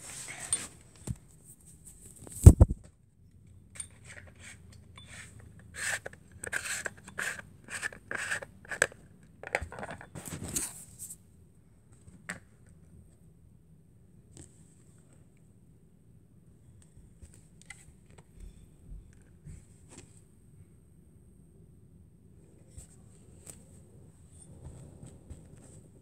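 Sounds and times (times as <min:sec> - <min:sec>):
scraping rubbing strokes: 0:04.1 - 0:08.9.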